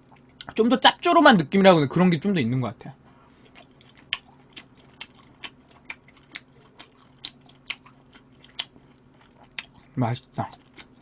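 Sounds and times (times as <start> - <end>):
chewing meat: 0.0 - 0.6, 3.3 - 11.0.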